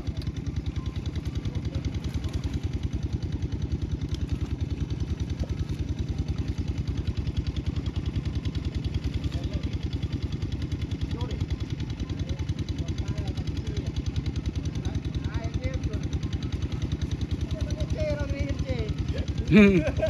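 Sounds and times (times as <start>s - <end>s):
small engine idling: 0.0s - 20.0s.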